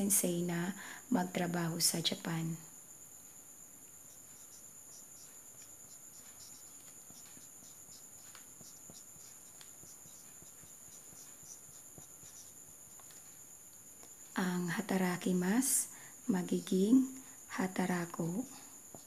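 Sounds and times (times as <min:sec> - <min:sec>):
marker squeaking on whiteboard: 0:03.9 - 0:13.6.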